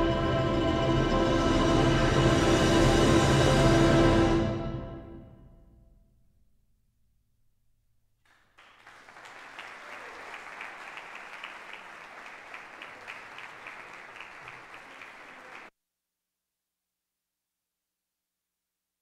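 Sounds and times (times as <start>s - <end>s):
audience applause: 8.3s - 15.7s.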